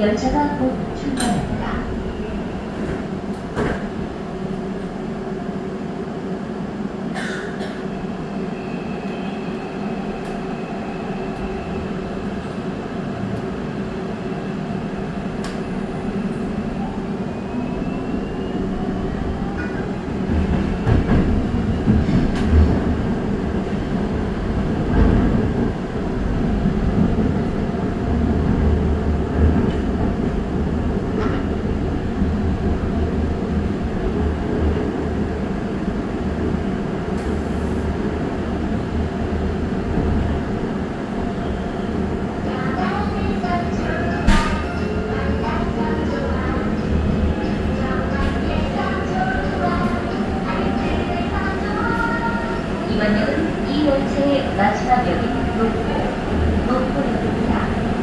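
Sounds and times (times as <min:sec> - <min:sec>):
subway train motor whine: 0:00.0 - 0:58.0
train running rumble: 0:18.6 - 0:58.0.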